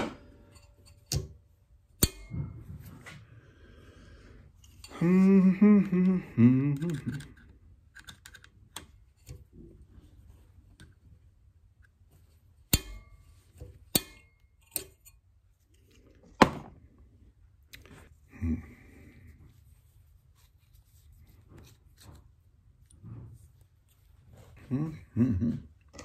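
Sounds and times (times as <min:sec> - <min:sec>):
rifle parts clicking and knocking: 0:06.8 - 0:09.4.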